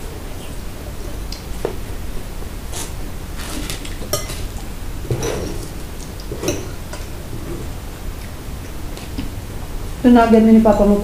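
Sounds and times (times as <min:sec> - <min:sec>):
cutlery clinking on plates: 0:03.7 - 0:04.5, 0:06.3 - 0:07.1.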